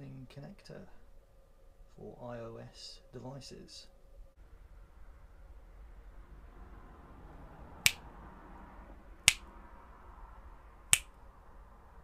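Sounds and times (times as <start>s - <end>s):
faint steady hiss: 0.0s - 6.6s
finger snaps: 7.8s - 8.0s, 10.9s - 11.1s.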